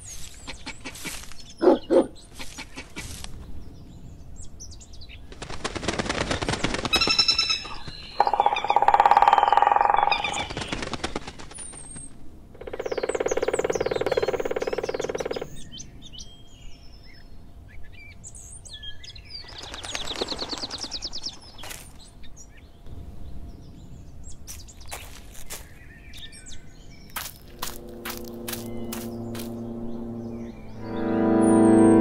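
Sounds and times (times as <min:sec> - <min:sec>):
birds chirping: 0:00.0 - 0:32.0
woodpecker drumming: 0:05.7 - 0:11.5, 0:12.6 - 0:15.6, 0:27.2 - 0:30.6.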